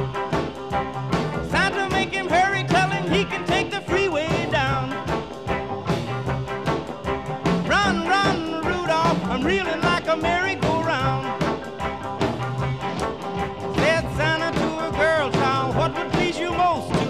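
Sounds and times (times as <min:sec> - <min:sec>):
upbeat music with fast beat: 0:00.0 - 0:17.0.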